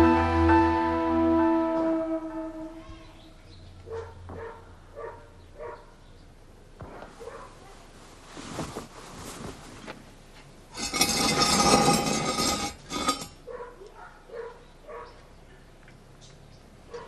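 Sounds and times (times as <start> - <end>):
steel trap clanking: 10.8 - 13.4.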